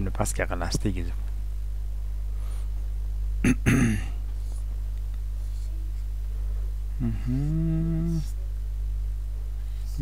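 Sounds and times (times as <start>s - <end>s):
low electrical hum: 0.0s - 10.0s
man humming: 6.9s - 8.4s.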